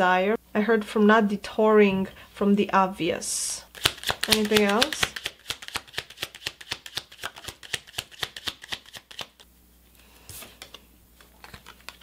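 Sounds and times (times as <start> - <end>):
cards being shuffled: 3.7 - 9.4, 10.3 - 12.0.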